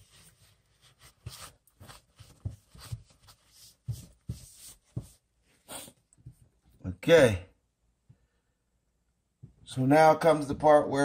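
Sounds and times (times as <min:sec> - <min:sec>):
paper towel rubbing a faucet: 0:00.0 - 0:06.0.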